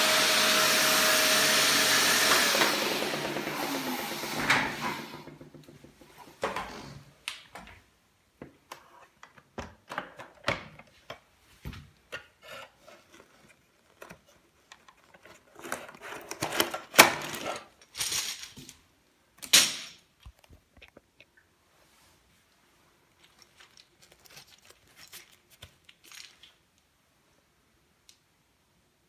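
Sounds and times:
vacuum cleaner clicks and scraping: 1.3 - 6.9, 12.1 - 18.2.

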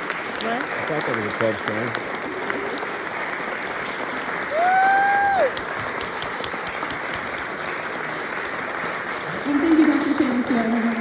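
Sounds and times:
audience applauding: 0.0 - 11.0
high-pitched cheer: 4.5 - 5.6.

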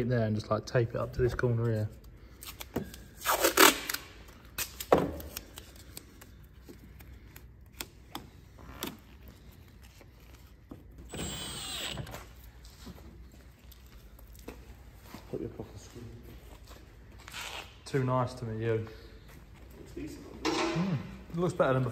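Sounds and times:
cordless drill whirring: 11.1 - 12.1.

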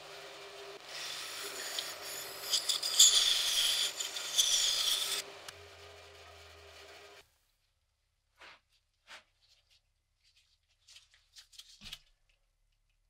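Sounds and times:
bandsaw motor hum: 0.0 - 7.2
bandsaw cutting wood: 0.5 - 7.2.

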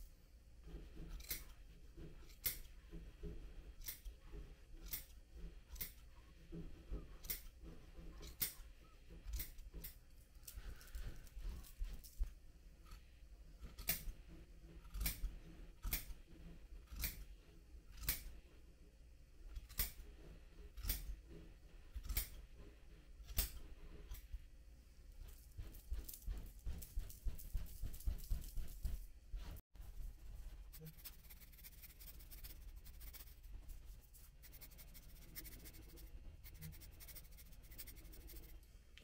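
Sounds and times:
scissors snipping yarn: 1.1 - 1.6, 2.2 - 2.7, 4.8 - 6.0, 9.2 - 11.1, 13.6 - 14.1, 14.8 - 16.2, 16.9 - 17.3, 17.9 - 18.4, 20.8 - 21.1, 22.0 - 22.4.

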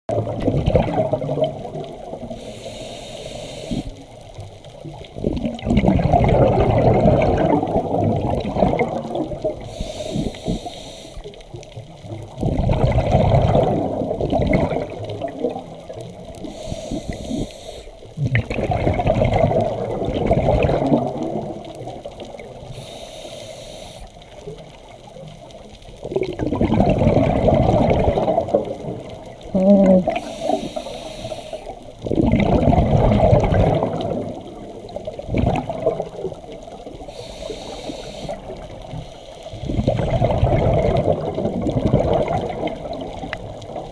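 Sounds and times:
bubbling on exhale: 0.1 - 4.0, 5.0 - 11.3, 12.2 - 22.9, 26.0 - 43.9
regulator hiss on inhale: 2.2 - 4.3, 9.5 - 11.5, 16.3 - 18.2, 22.6 - 24.6, 30.1 - 32.0, 36.8 - 40.0.

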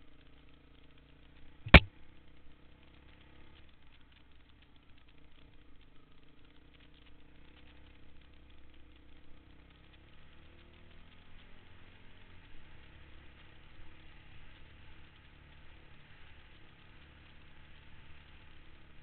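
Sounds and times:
dirt bike engine running: 0.0 - 19.0
loud sharp knock: 1.7 - 1.9.

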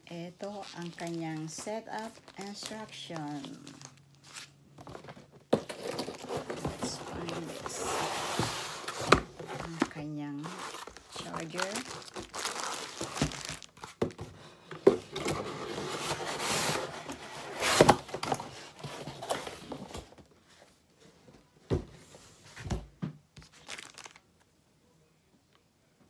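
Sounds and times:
plastic packaging crinkling: 0.4 - 7.8, 8.9 - 14.2, 23.4 - 24.4
cardboard box rustling: 0.7 - 20.2.

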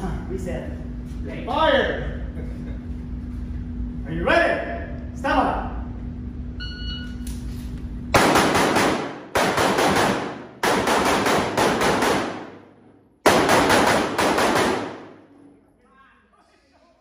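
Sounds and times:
pistol shots echoing indoors: 8.1 - 15.5.

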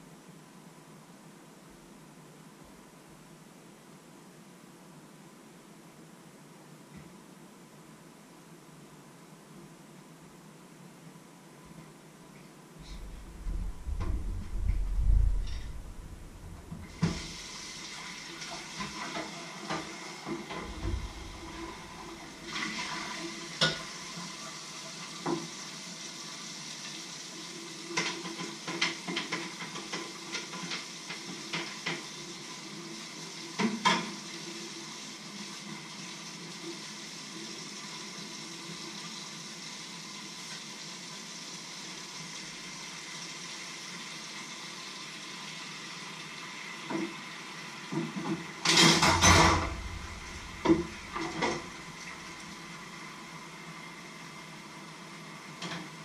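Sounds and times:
tap water running into sink: 13.0 - 24.2, 47.9 - 52.7.

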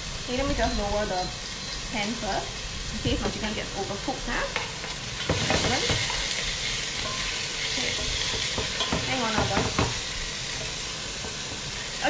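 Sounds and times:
chicken sizzling in oil: 0.0 - 12.0
utensil knocking on pan: 4.6 - 6.3, 7.0 - 11.7.

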